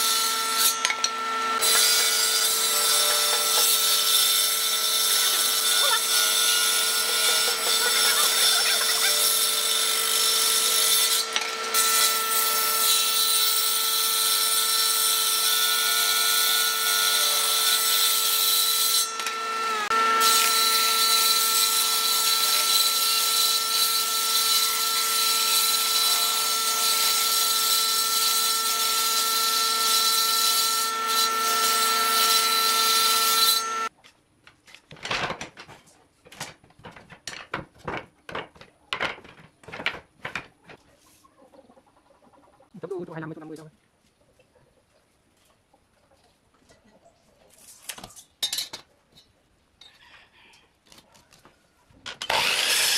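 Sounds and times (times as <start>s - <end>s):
table saw whining: 0.0s - 33.9s, 52.1s - 52.9s
wooden strips knocking together: 34.4s - 40.8s.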